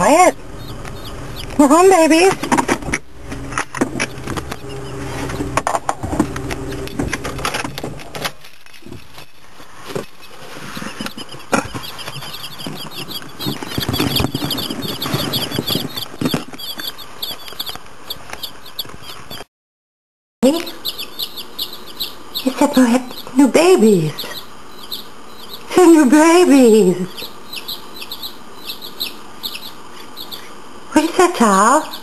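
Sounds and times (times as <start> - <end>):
chicks cheeping: 0.0 - 2.3, 4.0 - 5.6, 10.2 - 19.5, 20.5 - 32.0.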